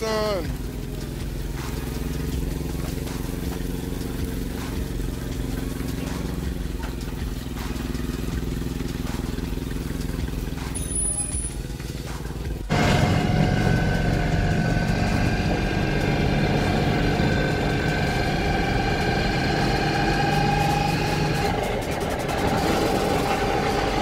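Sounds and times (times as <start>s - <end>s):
truck engine and road noise: 0.0s - 24.0s
forklift engine running: 0.5s - 24.0s
steady whine: 12.7s - 24.0s.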